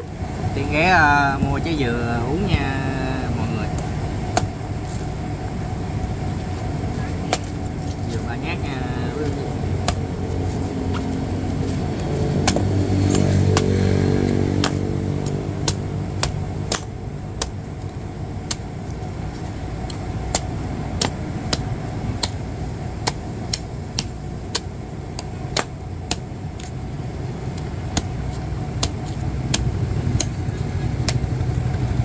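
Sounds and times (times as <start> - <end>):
road traffic: 0.0 - 32.0
vehicle engine passing: 0.0 - 32.0
machete chopping coconut: 3.7 - 4.6, 7.2 - 7.6, 8.7 - 11.2, 11.9 - 19.0, 19.8 - 26.8, 27.4 - 31.4.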